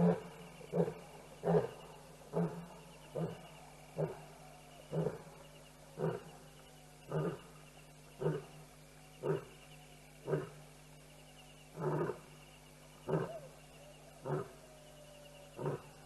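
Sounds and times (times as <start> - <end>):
lion grunting: 0.0 - 4.3, 4.9 - 5.4, 6.0 - 6.4, 7.1 - 7.5, 8.2 - 9.6, 10.2 - 10.6, 11.7 - 12.4, 13.0 - 13.6, 14.2 - 14.6, 15.4 - 16.0.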